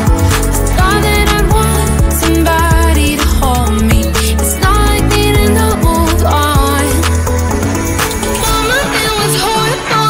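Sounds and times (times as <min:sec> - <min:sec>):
rhythm and blues pop song: 0:00.0 - 0:10.0.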